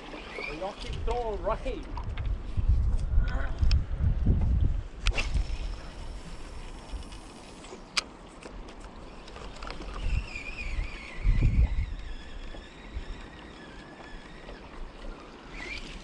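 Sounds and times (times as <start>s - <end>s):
wind buffeting microphone: 0.0s - 7.3s, 9.4s - 15.8s
faint thin wavering whine: 5.1s - 8.0s, 8.9s - 16.0s.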